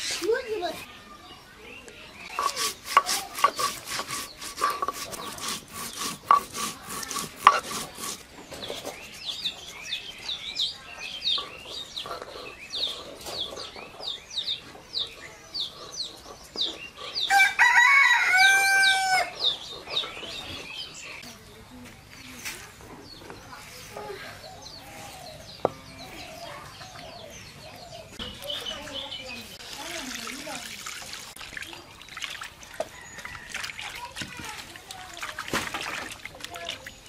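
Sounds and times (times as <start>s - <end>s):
small birds chirping: 0.0s - 37.0s
stone grinding seeds: 2.3s - 9.7s
rooster crowing: 17.3s - 19.3s.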